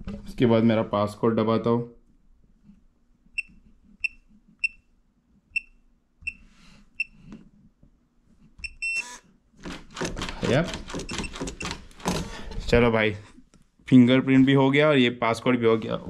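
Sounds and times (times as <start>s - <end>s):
keypad beeps: 8.6s - 9.2s, 11.0s - 11.8s.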